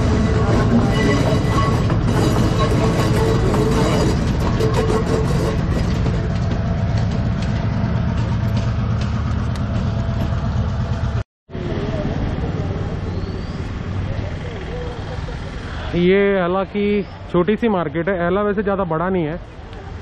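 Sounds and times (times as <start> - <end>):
wheels clicking over rail joints: 0.0 - 11.2
diesel train engine drone: 0.0 - 20.0.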